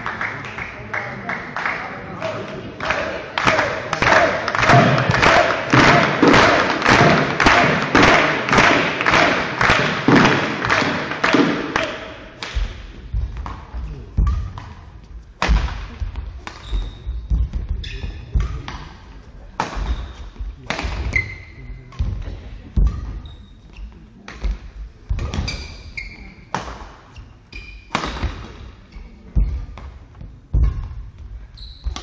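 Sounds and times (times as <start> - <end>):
racket hitting shuttlecock: 4.0 - 19.0, 19.6 - 23.2, 24.3 - 25.6, 27.9 - 28.6
shoes squeaking: 15.9 - 18.7, 19.8 - 20.4, 21.0 - 21.9, 22.8 - 24.2, 25.2 - 26.5, 30.6 - 32.0.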